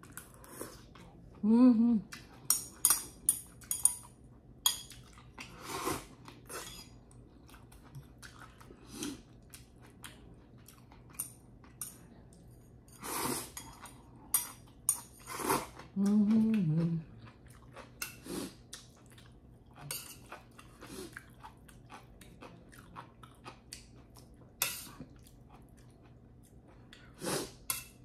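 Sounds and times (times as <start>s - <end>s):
person humming: 1.4s - 2.1s, 16.0s - 17.2s
chewing and slurping: 4.9s - 27.7s.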